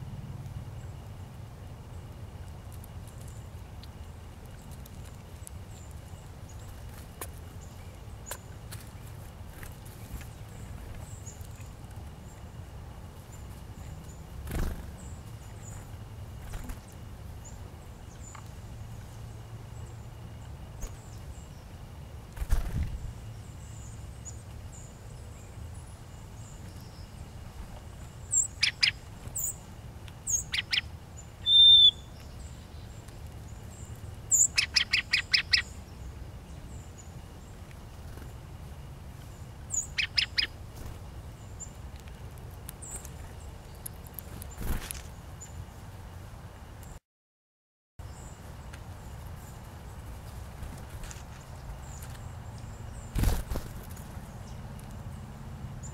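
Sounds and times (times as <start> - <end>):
bird wings fluttering: 14.4 - 15.0, 15.7 - 17.0, 22.3 - 23.2, 44.3 - 45.1, 50.1 - 52.2, 53.1 - 54.3
songbird chip notes: 22.9 - 37.9, 39.3 - 40.6
loud whistled bird note: 31.4 - 32.0.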